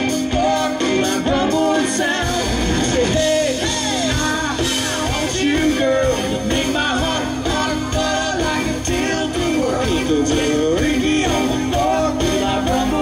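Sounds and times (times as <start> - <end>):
live country band: 0.0 - 13.0
man singing lead: 0.0 - 13.0.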